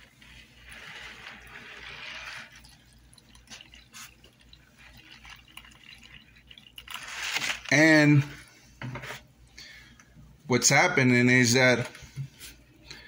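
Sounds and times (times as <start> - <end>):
dripping liquid: 0.0 - 7.8
liquid pouring into plastic tub: 0.0 - 8.3.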